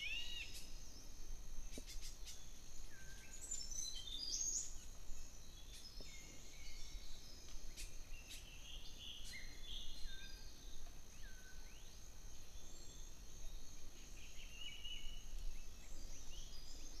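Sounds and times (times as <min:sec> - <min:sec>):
bird chirps and whistled calls: 0:00.0 - 0:00.7
insect drone: 0:00.0 - 0:17.0.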